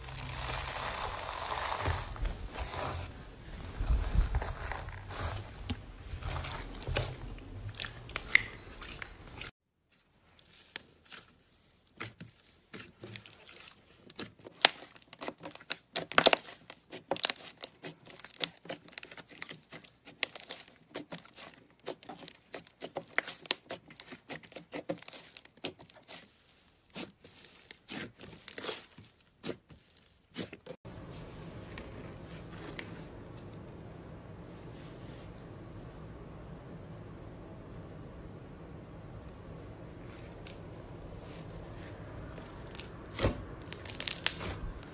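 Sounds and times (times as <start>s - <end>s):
hands squishing slime: 6.2s - 9.5s, 10.2s - 30.8s.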